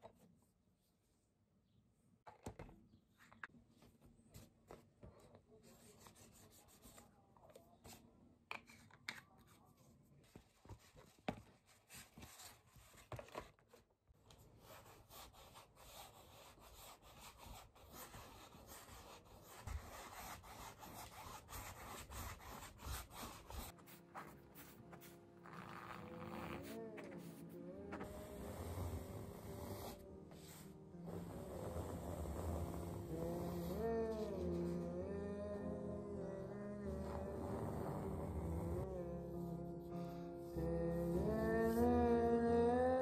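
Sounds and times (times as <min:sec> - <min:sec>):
brush and pencil scratching canvas: 0:14.5 - 0:34.8.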